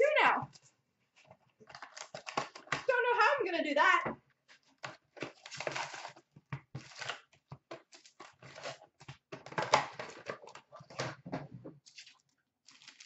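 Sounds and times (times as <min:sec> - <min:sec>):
cardboard box and foil packs rustling: 0:01.6 - 0:02.9, 0:04.5 - 0:11.3, 0:11.9 - 0:13.0.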